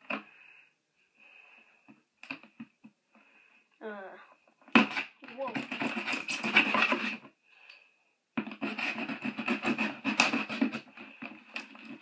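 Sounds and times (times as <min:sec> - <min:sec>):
knife scraping packing tape: 0:04.8 - 0:07.2, 0:08.5 - 0:12.0.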